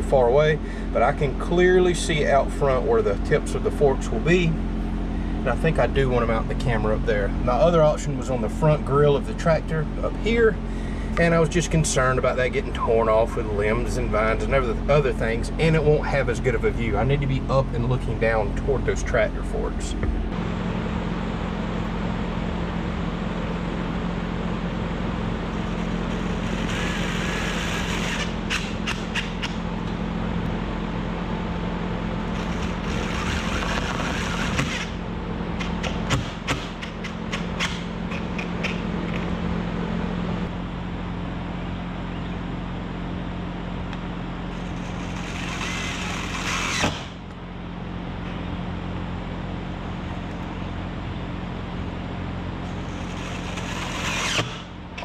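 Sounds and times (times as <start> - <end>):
low hum: 0.0 - 55.0
cordless drill whirring: 32.3 - 35.0, 44.6 - 47.2, 52.8 - 54.7.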